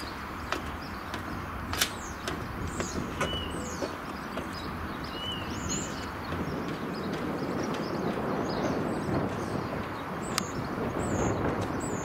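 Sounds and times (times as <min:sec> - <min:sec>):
train rumble: 0:00.0 - 0:12.0
sharp clicks: 0:00.5 - 0:03.3.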